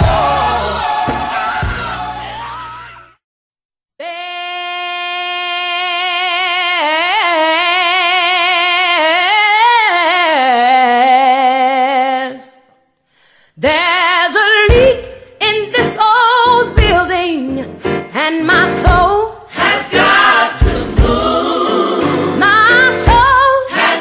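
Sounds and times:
music: 0.0 - 3.2, 14.4 - 24.0
woman singing gospel: 13.6 - 24.0.

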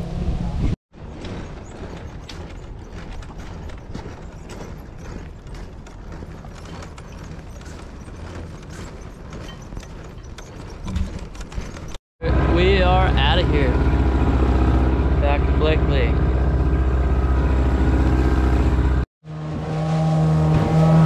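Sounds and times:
hand cart wheels rattling on concrete: 1.3 - 12.0.

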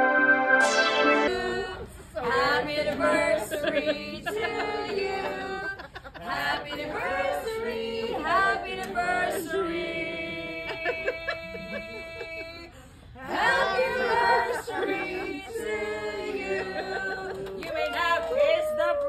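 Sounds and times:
music: 0.0 - 1.7
people singing: 0.0 - 12.4, 13.2 - 17.8.

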